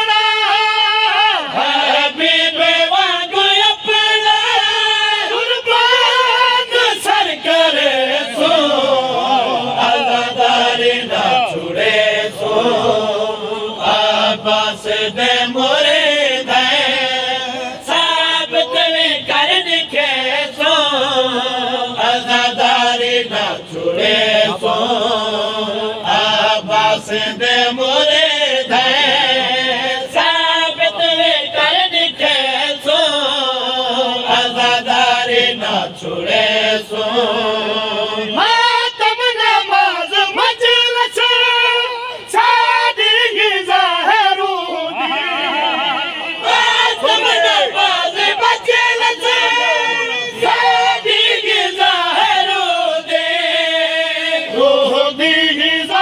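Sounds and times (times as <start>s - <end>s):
man chanting: 2.9s - 11.8s, 16.7s - 20.4s, 37.8s - 51.0s.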